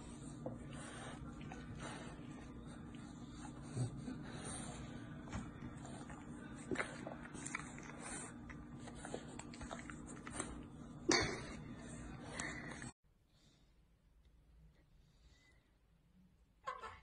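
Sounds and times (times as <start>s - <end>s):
dog snuffling and licking: 0.0s - 11.4s
dog chewing: 5.4s - 10.8s.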